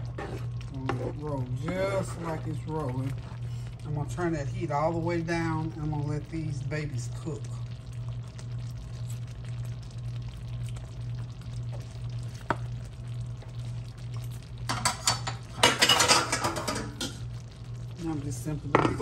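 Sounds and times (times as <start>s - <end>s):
scraping and clattering at pan: 0.0s - 2.6s, 14.7s - 17.2s
gravy bubbling in a skillet: 0.0s - 19.0s
low steady hum: 0.0s - 19.0s.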